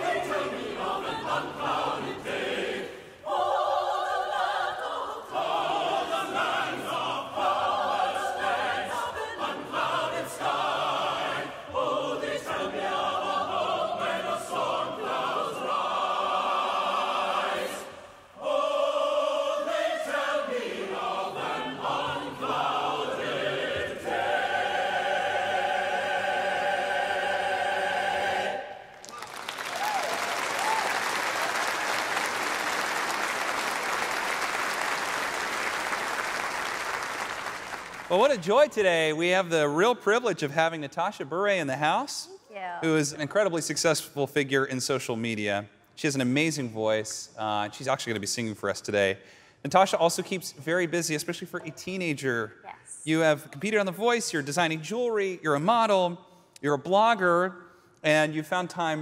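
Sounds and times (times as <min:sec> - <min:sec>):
choir singing a hymn: 0:00.0 - 0:28.9
congregation applauding: 0:28.8 - 0:38.7.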